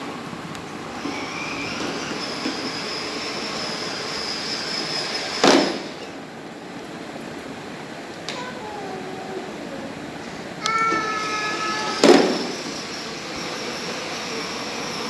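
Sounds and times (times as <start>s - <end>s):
wheels rolling on hard floor: 0.7s - 6.2s
toy car electric motors whining: 0.9s - 6.1s, 10.6s - 15.0s
sharp knock: 12.0s - 12.6s.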